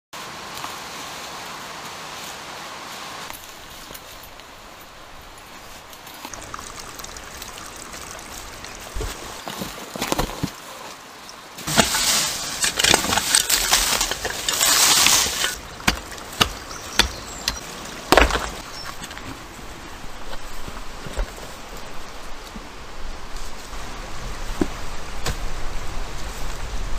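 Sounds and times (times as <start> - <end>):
digging knocks on earth and stone: 7.0 - 10.8, 11.6 - 19.5, 24.5 - 25.6
earth and leaves scraped and flung: 7.9 - 22.4.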